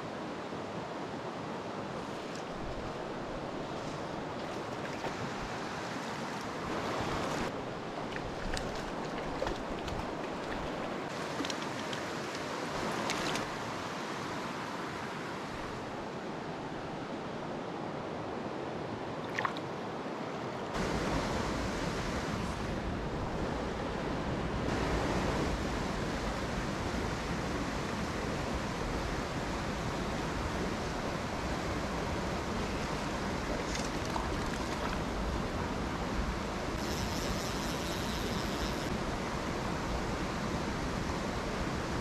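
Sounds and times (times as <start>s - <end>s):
creek water rushing over rocks: 0.4s - 16.0s, 24.7s - 36.8s.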